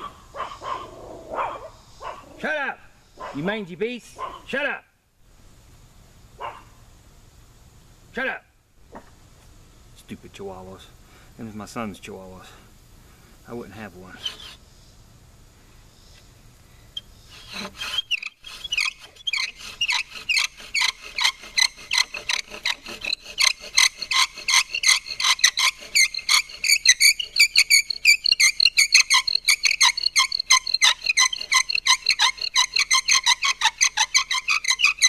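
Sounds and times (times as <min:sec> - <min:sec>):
wooden spindle squeaking: 0:14.1 - 0:14.6, 0:17.0 - 0:35.0.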